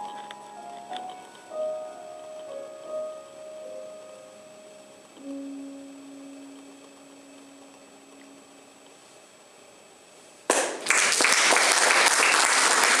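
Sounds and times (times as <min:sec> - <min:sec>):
audience applause: 0:10.5 - 0:13.0.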